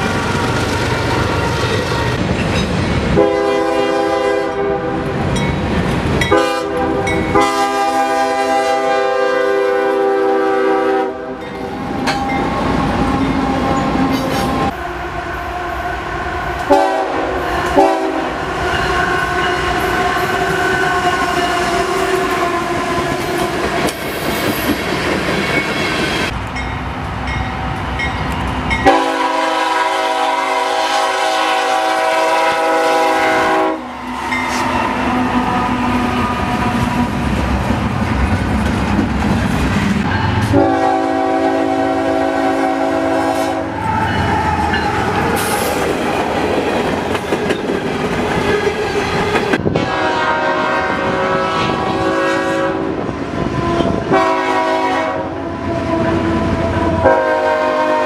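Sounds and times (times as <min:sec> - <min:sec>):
train rumble and wheel clatter: 0:00.0 - 0:58.0
locomotive air horn blasts: 0:03.2 - 0:05.2, 0:06.3 - 0:16.0, 0:16.6 - 0:23.3, 0:28.8 - 0:33.9, 0:40.4 - 0:44.1, 0:49.7 - 0:58.0.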